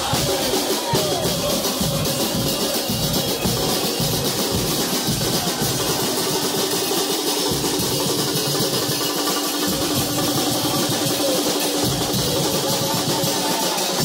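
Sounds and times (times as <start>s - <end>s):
snare drums beating: 0.0s - 14.0s.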